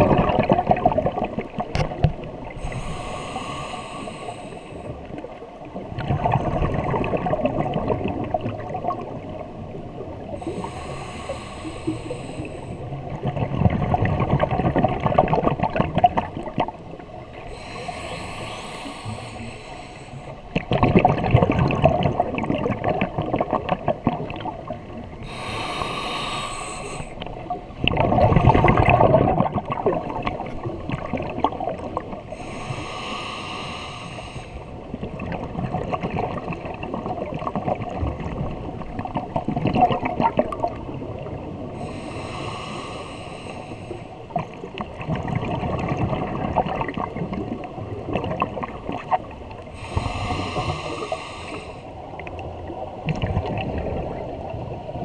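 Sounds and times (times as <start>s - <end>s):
gurgling exhaled bubbles: 0.0s - 4.1s, 4.9s - 19.4s, 20.5s - 32.6s, 34.8s - 42.5s, 44.2s - 51.5s, 52.2s - 55.0s
regulator inhalation hiss: 2.6s - 5.0s, 10.4s - 12.8s, 17.4s - 20.4s, 25.2s - 27.3s, 32.3s - 34.8s, 41.8s - 44.2s, 49.8s - 51.9s.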